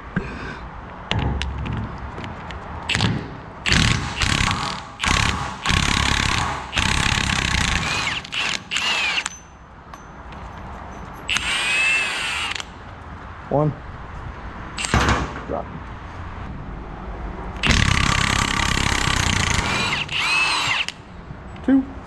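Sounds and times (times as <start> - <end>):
impact wrench hammering: 2.9 - 10.2.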